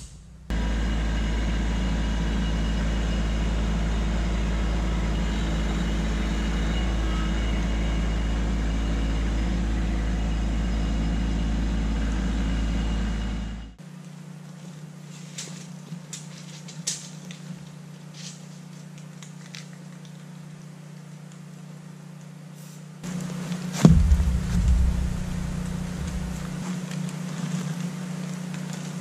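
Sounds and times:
tractor diesel engine running: 0.0s - 13.8s, 23.9s - 26.6s.

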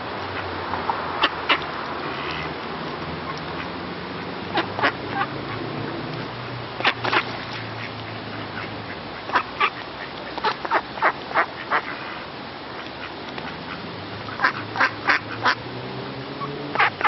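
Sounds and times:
ducks quacking: 3.2s - 3.8s, 4.4s - 5.8s, 6.8s - 15.6s, 16.4s - 17.0s.

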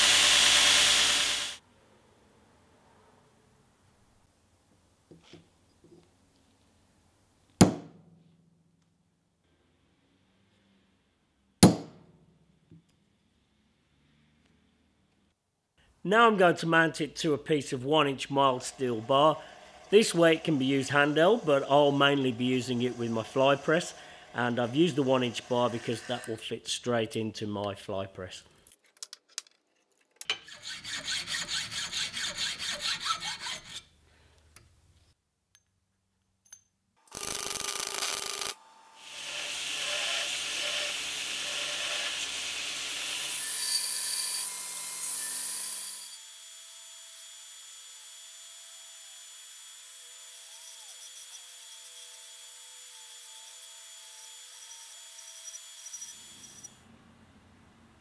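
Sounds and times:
belt grinder on steel: 0.0s - 1.6s, 18.5s - 26.4s, 30.3s - 33.9s, 37.1s - 46.2s, 50.1s - 56.8s
drill press grinding into steel: 18.5s - 26.4s.

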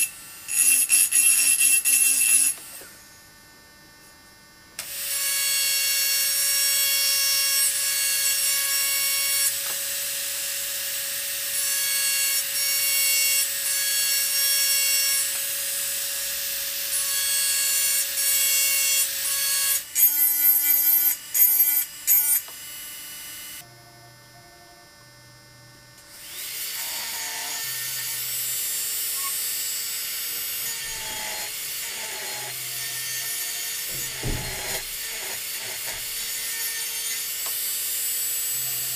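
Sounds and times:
rotary tool grinding glass: 0.0s - 2.8s, 11.5s - 22.5s, 26.2s - 38.9s.

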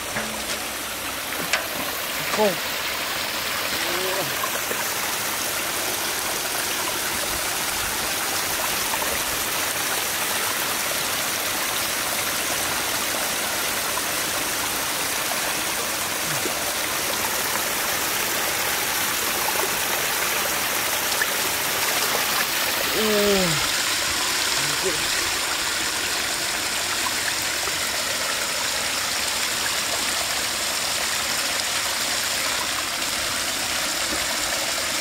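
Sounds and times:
water splashing over rocks: 0.0s - 35.0s.

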